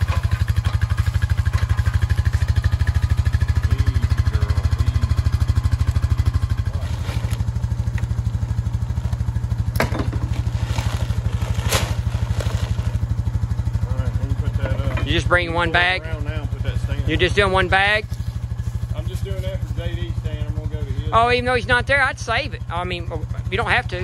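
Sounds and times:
atv engine idling: 0:00.0 - 0:24.0
sharp knocks: 0:09.7 - 0:10.4.

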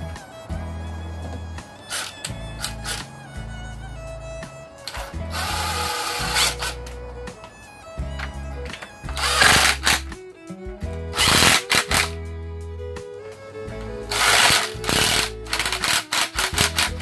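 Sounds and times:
cordless drill running: 0:01.9 - 0:03.0, 0:04.8 - 0:07.0, 0:08.8 - 0:10.1, 0:11.1 - 0:12.2, 0:14.1 - 0:17.0.

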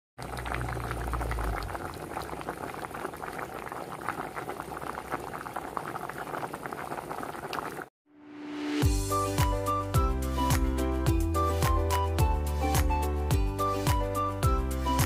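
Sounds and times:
soup boiling in a metal pot: 0:00.2 - 0:07.9.

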